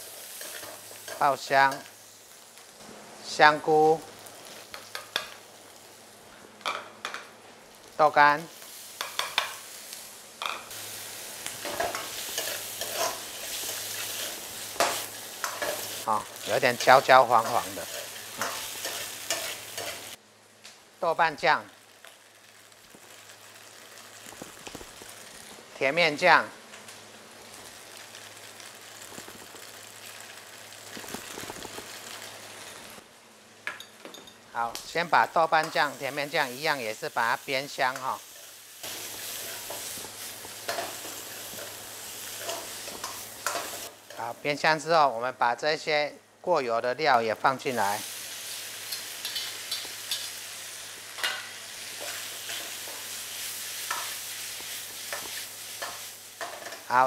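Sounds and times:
food sizzling in hot oil: 0.0 - 45.2, 47.0 - 57.0
metal ladle scraping a wok: 11.6 - 16.0.

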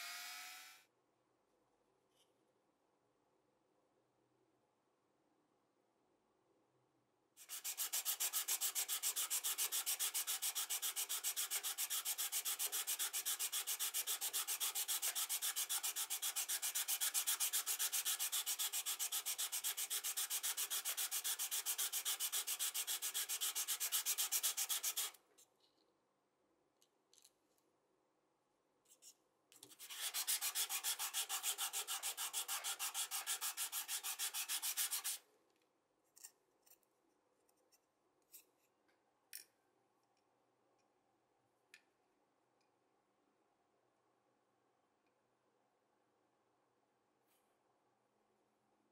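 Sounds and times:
metal rasping on sandpaper: 7.4 - 25.2, 29.7 - 35.2.

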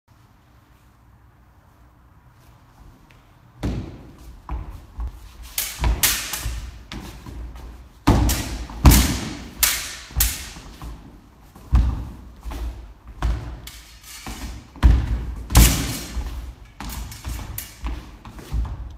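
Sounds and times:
feet stamping on wooden floor: 3.6 - 9.5, 10.2 - 13.6, 14.3 - 18.9
sabre blades clacking: 5.4 - 6.8, 8.1 - 10.8, 13.4 - 14.7, 15.5 - 18.0.

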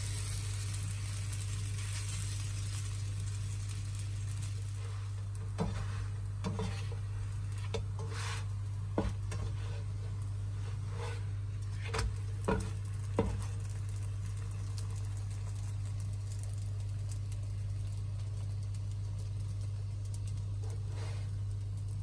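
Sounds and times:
bread sizzling in a pan: 0.0 - 22.0
steady low hum: 0.0 - 22.0
spatula scraping a pan: 4.7 - 13.5, 20.6 - 21.3.

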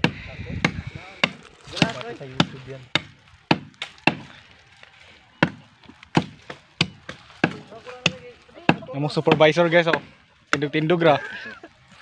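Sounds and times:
machete chopping wood: 0.0 - 4.3, 5.4 - 10.7.

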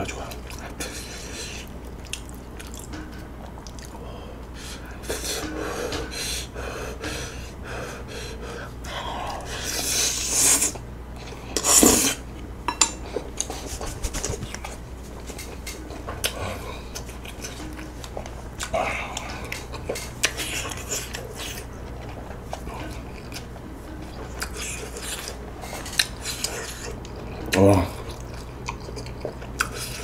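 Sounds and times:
wet eating sounds: 0.2 - 6.1, 13.0 - 30.0.

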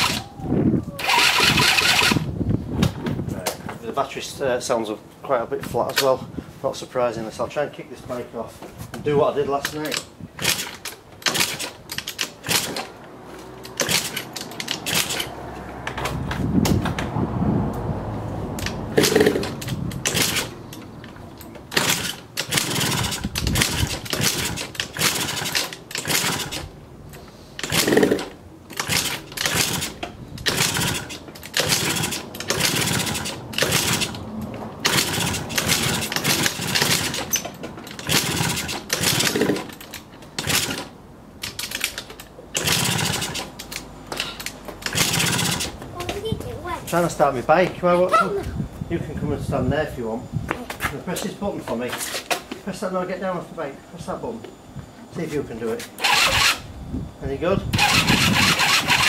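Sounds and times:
scooter engine kick-started: 0.0 - 0.3, 0.9 - 3.0, 9.6 - 13.0, 13.6 - 17.1, 18.6 - 26.7, 27.6 - 34.2, 34.8 - 46.3, 56.0 - 56.7, 57.7 - 59.0.

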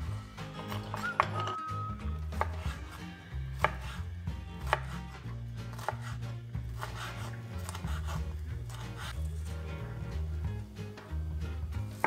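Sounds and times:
knife chopping on wooden board: 0.6 - 1.6, 2.3 - 9.2.

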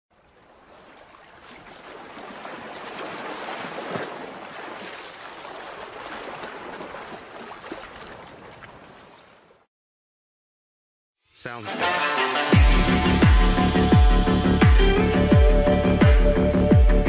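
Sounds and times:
rushing water: 0.1 - 9.7.

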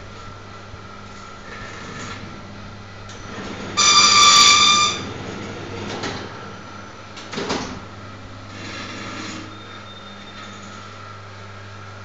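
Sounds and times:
binding machine humming: 0.0 - 11.3
machine buzzer beep: 3.8 - 5.0.

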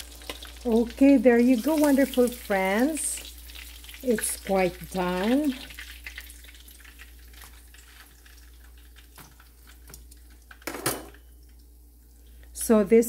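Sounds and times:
hot oil crackling: 0.0 - 12.6.

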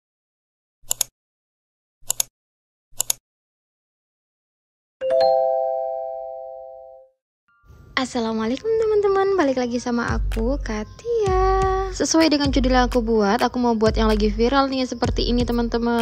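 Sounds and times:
short clicks: 0.8 - 1.1, 2.0 - 2.3, 3.0 - 3.2
bell-like chime: 5.0 - 7.9.

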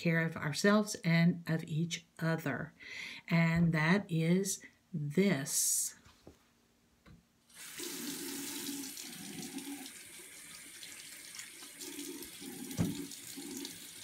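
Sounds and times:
water running into basin: 7.5 - 14.0
tap turned on: 12.8 - 13.0.

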